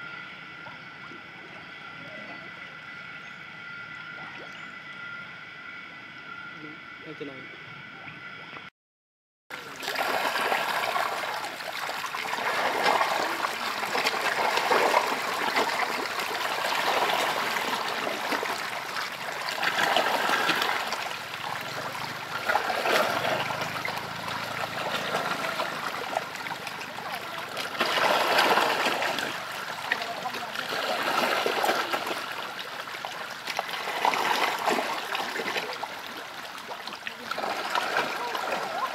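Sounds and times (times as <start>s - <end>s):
fish thrashing water splashing: 9.6s - 38.9s.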